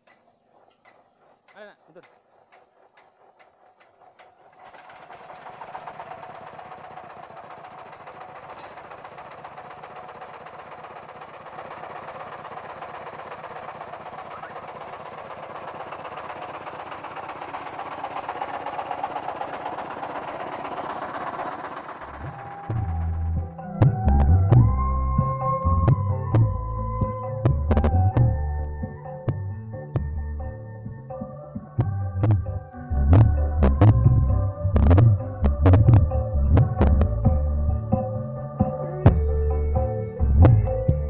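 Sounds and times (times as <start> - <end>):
hiss: 0.0 - 23.7
small engine running: 0.0 - 41.0.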